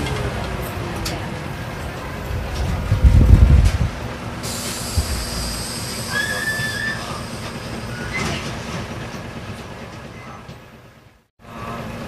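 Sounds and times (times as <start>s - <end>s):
compressed air hiss: 4.4s - 6.1s.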